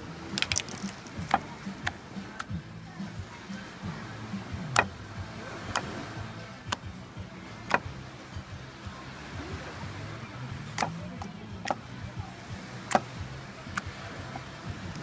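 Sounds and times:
slime popping and clicking: 0.4 - 1.1.

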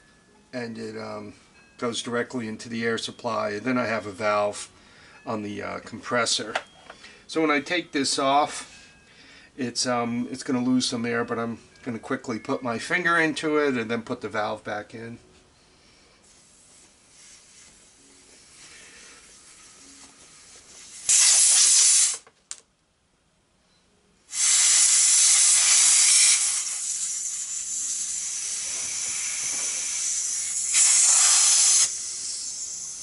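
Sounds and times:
compressed air hissing from tire valve: 20.4 - 22.2, 24.3 - 33.0.

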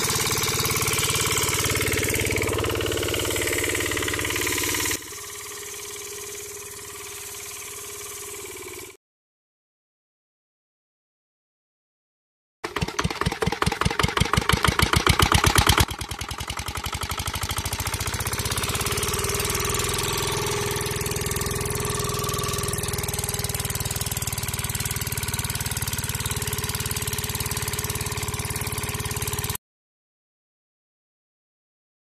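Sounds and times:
engine starting and idling: 0.0 - 9.0, 12.6 - 29.6.

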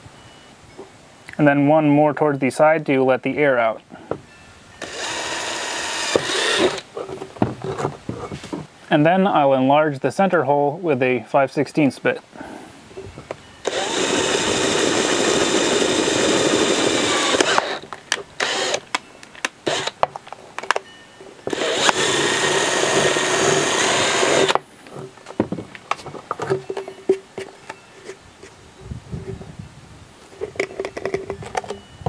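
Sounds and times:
cordless drill drilling plastic: 4.8 - 6.9, 13.6 - 19.0, 19.6 - 20.0, 21.5 - 24.6.

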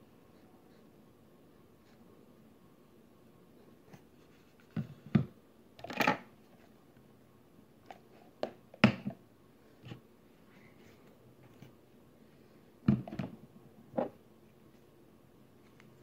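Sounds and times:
objects knocking and clattering: 4.7 - 6.3, 12.8 - 13.4.

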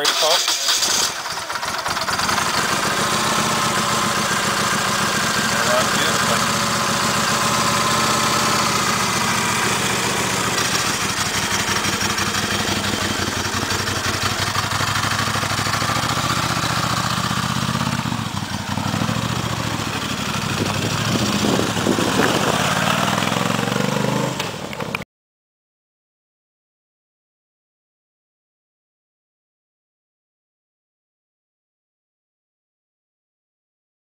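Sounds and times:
motorcycle engine idling and revving: 0.0 - 25.0
motorcycle pulling away: 0.1 - 25.0.

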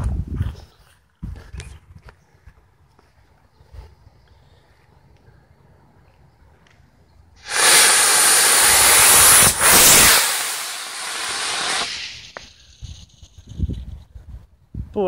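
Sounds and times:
rocket engine rushing hiss: 7.4 - 12.8.

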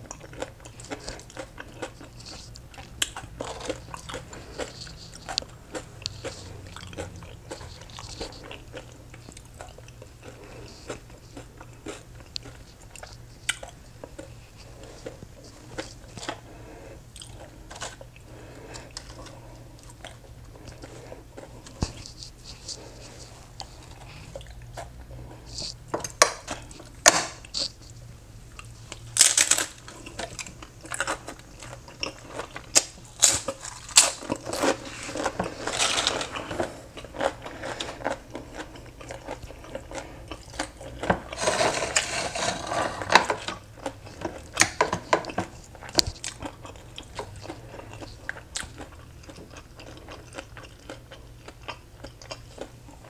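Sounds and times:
chewing and crunching: 0.0 - 53.0
fork scraping on ceramic plate: 41.3 - 43.5.

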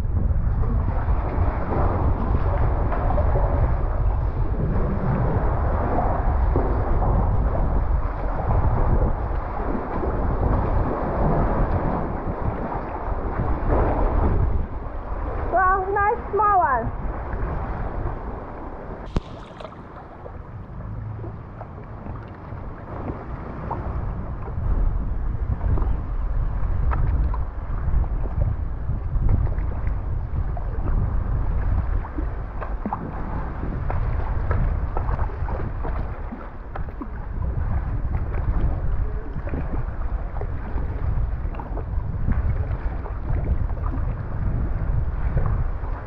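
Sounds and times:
low steady rumble: 0.0 - 46.0
water lapping against kayak: 0.0 - 46.0
wind on microphone: 0.0 - 46.0
small water splashes: 18.6 - 24.7, 29.2 - 46.0.

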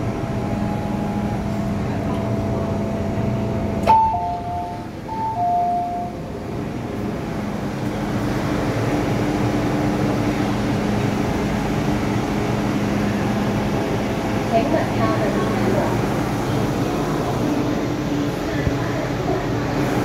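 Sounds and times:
train electrical hum: 0.0 - 20.0
two-tone electronic chime: 3.9 - 6.2.

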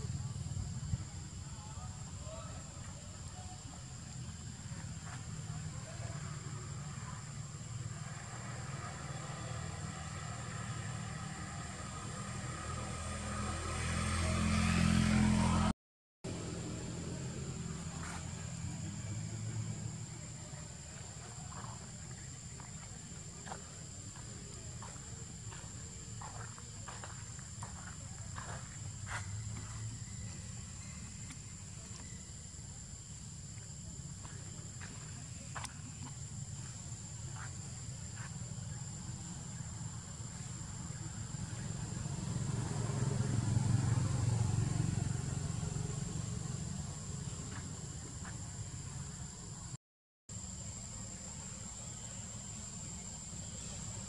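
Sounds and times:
footsteps on dirt: 21.0 - 30.4.

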